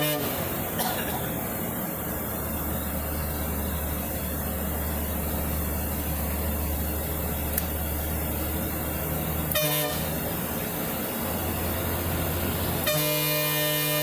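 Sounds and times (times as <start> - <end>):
bus horn: 0.0 - 1.4, 9.4 - 10.6, 11.8 - 14.0
bus diesel engine droning: 0.0 - 14.0
click: 7.5 - 7.8.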